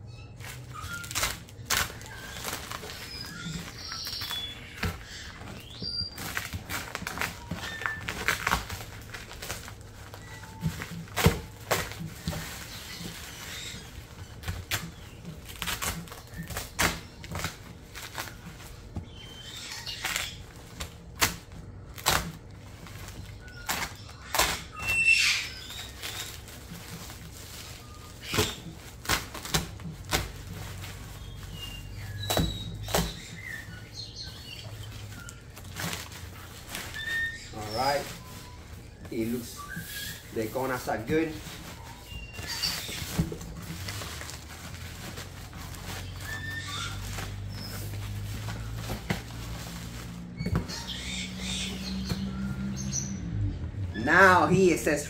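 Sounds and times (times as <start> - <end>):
plastic wrapping rustling: 0.1 - 53.4
cardboard box rustling and scraping: 35.2 - 51.0.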